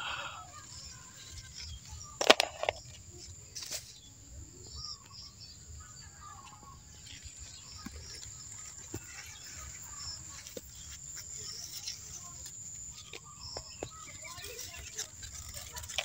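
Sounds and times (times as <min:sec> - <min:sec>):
faint bird chirps: 0:00.0 - 0:16.0
plastic bowl knocking on leaf litter: 0:02.2 - 0:02.8.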